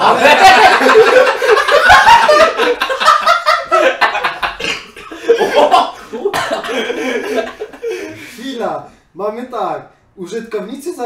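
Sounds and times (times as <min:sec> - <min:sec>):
men laughing: 0:00.0 - 0:08.4
men speaking: 0:00.0 - 0:11.0.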